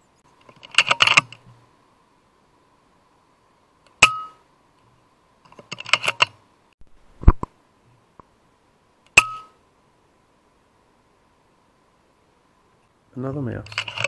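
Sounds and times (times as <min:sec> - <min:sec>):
metallic clicks of rifle lever: 0:00.4 - 0:01.4, 0:05.5 - 0:06.4, 0:13.6 - 0:14.0.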